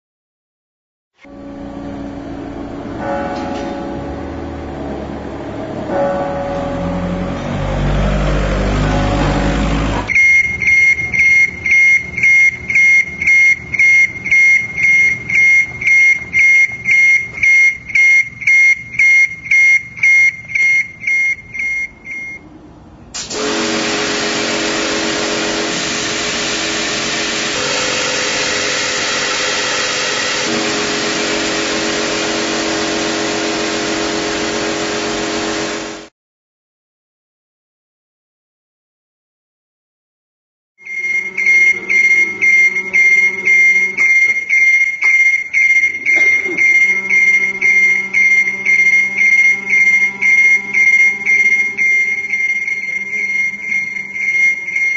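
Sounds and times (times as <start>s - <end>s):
motor hum: 1.2s - 21.2s, 23.3s - 36.1s, 40.9s - 54.9s
low street rumble: 1.3s - 17.4s
high electronic beeps: 10.1s - 22.4s, 40.8s - 54.9s
pressure washer spraying: 23.2s - 36.1s.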